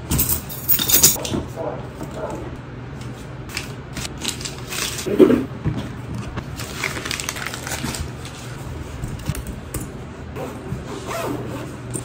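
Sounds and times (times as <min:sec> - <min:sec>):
paper crumpling: 0:06.5 - 0:08.6.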